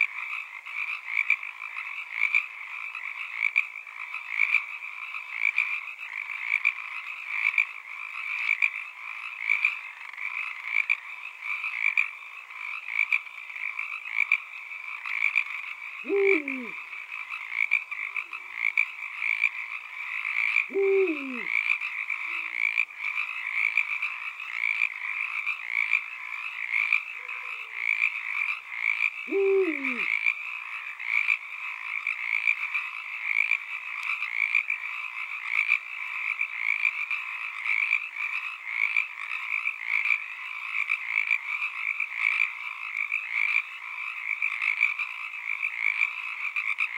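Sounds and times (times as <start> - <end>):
chorus of frogs calling: 0.0 - 46.9
deep falling frog croak: 0.0 - 46.9
faint short frog call: 16.0 - 17.0, 20.4 - 22.8, 28.9 - 30.3.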